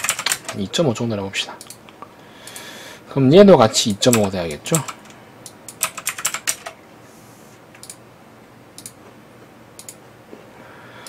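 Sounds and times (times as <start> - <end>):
keyboard and mouse clicking: 4.1 - 6.8, 7.8 - 8.0, 8.8 - 9.0, 9.8 - 10.0.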